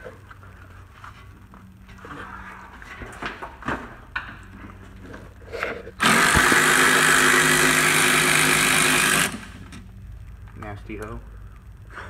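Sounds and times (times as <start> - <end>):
power ratchet running: 6.0 - 9.8.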